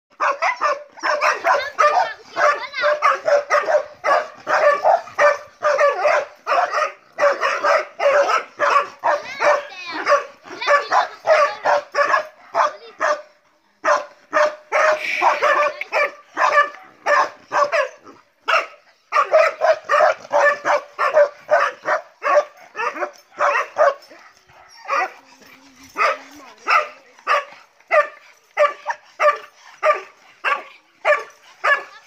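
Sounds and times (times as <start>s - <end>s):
dog barking sharply: 13.9s - 24.0s.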